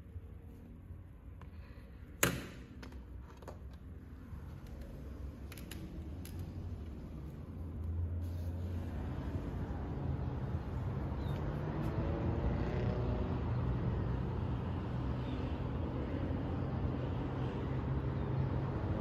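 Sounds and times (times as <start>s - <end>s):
highway traffic hum: 0.0s - 19.0s.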